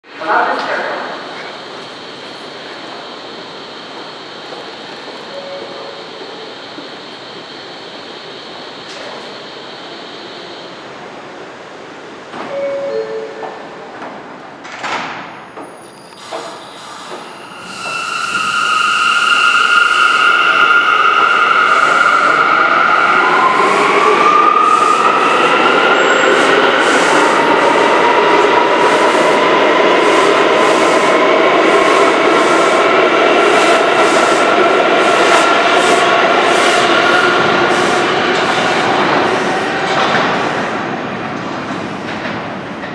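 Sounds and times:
train wheel and rail rush: 0:00.0 - 0:42.9
train doors sliding shut: 0:12.3 - 0:18.7
two-tone door chime: 0:12.5 - 0:13.5.

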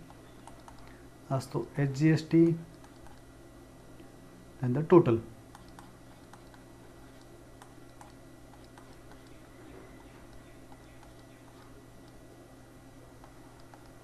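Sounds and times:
stylus tapping tablet: 0:00.0 - 0:00.9, 0:05.5 - 0:09.4, 0:10.0 - 0:12.2, 0:13.2 - 0:14.0
low hum: 0:00.0 - 0:14.0.

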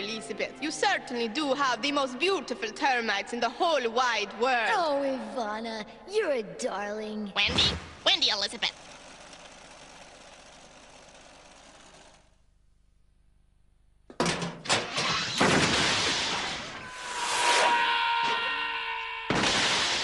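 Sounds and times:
loud knocks and crashing: 0:14.1 - 0:17.0, 0:19.3 - 0:20.0.

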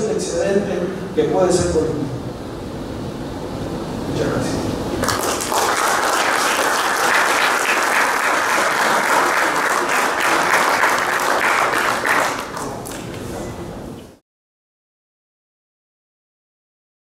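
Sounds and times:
audience applauding: 0:05.0 - 0:13.2.

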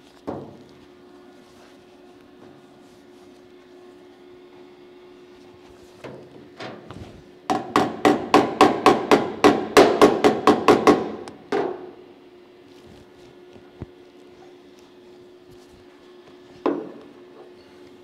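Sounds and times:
hammer striking steel gutter: 0:07.5 - 0:11.9.

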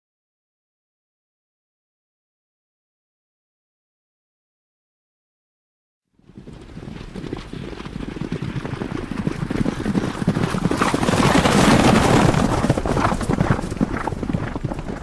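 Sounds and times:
horses stampeding hoofbeats: 0:06.2 - 0:15.0.

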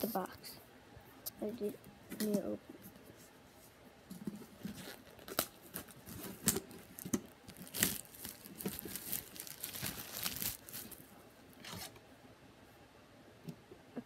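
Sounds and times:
plastic packaging tearing and crinkling: 0:04.5 - 0:11.9.

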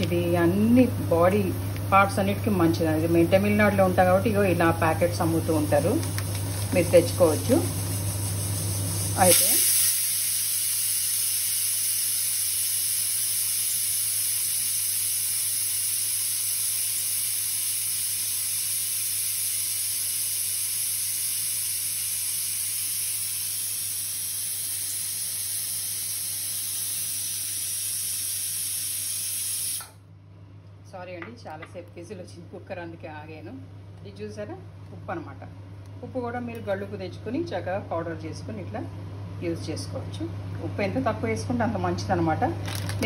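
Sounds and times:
pressure cooker steam hiss: 0:03.7 - 0:30.0.

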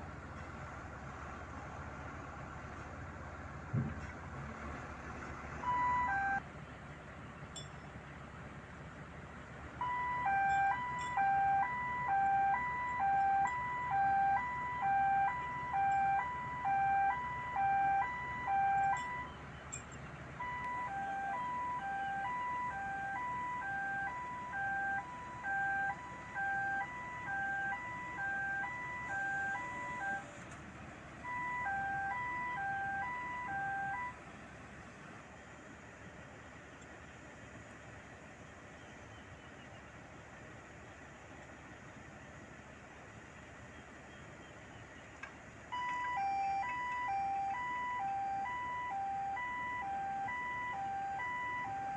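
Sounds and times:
diesel engine running: 0:00.0 - 0:51.9
two-tone electronic warning alarm: 0:05.6 - 0:06.4, 0:09.8 - 0:30.3, 0:31.2 - 0:34.2, 0:45.7 - 0:51.9.

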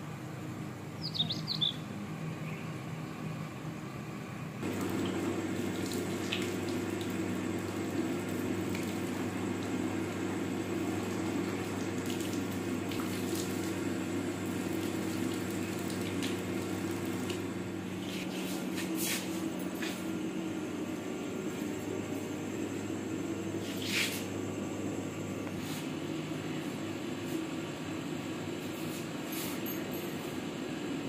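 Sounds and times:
steady low hum: 0:00.0 - 0:31.0
tap water running over hands: 0:04.7 - 0:09.8, 0:11.1 - 0:13.8, 0:14.6 - 0:17.5.

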